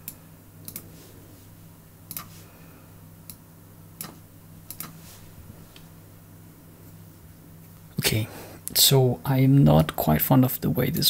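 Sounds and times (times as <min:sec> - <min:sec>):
computer mouse clicks: 0:00.0 - 0:00.9, 0:02.1 - 0:02.3, 0:04.0 - 0:05.0
low steady hum: 0:00.0 - 0:11.0.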